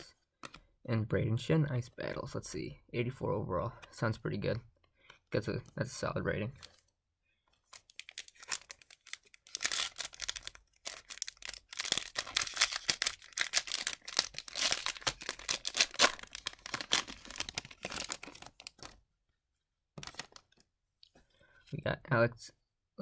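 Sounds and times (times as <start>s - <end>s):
wrapper crinkling: 7.7s - 19.0s, 20.0s - 20.6s.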